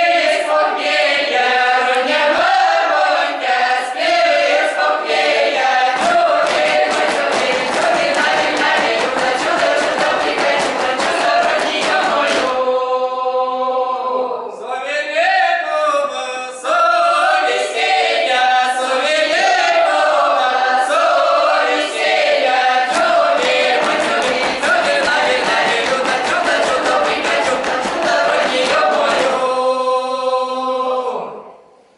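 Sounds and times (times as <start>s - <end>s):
mixed choir singing unaccompanied: 0.0s - 31.6s
sharp rhythmic beats: 1.8s - 12.8s, 17.8s - 29.8s.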